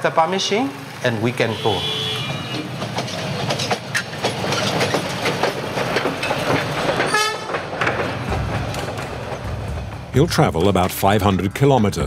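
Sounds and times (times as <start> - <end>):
train horn toot: 1.5 - 2.7, 7.1 - 7.5
train wheels clattering: 2.2 - 11.2.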